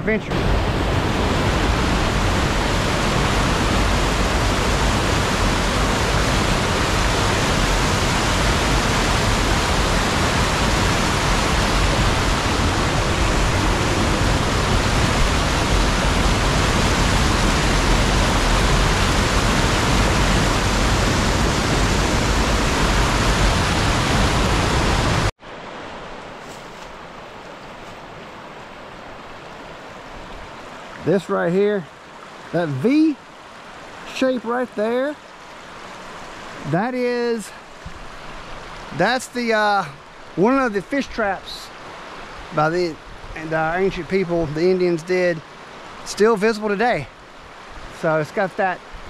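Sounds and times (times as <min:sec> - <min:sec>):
whitewater rushing over rocks: 0:00.0 - 0:26.1, 0:28.0 - 0:49.0
quiet flow of shallow water: 0:25.4 - 0:49.0.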